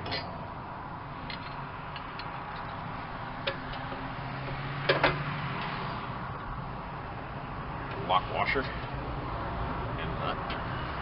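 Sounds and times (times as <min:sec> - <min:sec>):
metallic clicks of bolt and washers: 0:01.3 - 0:02.8, 0:03.4 - 0:05.2.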